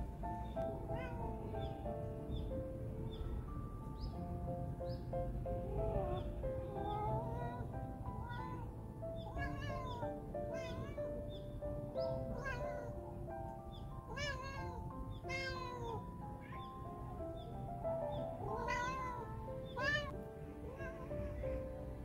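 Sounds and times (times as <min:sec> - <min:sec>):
soft background music: 0:00.0 - 0:22.0
cat meowing: 0:00.5 - 0:01.7, 0:05.6 - 0:13.0, 0:14.1 - 0:17.5, 0:18.1 - 0:21.9.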